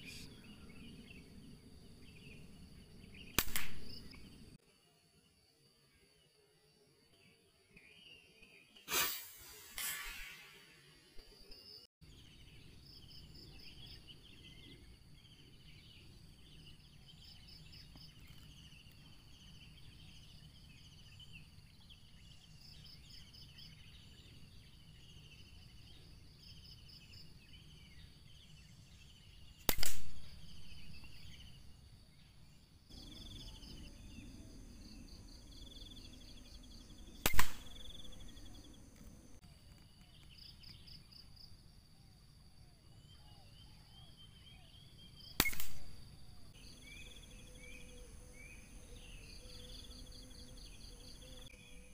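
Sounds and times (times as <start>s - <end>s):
birds chirping: 0.0s - 4.6s, 7.0s - 41.5s, 42.5s - 51.9s
rifle shots: 3.4s - 3.9s, 29.7s - 30.3s, 37.2s - 37.9s, 45.4s - 45.9s
insects trilling: 12.8s - 51.9s.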